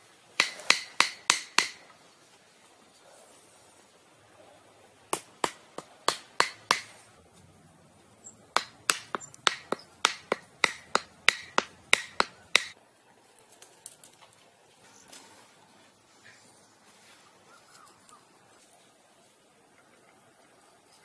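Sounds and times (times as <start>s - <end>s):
sharp knocks: 8.6s - 12.8s.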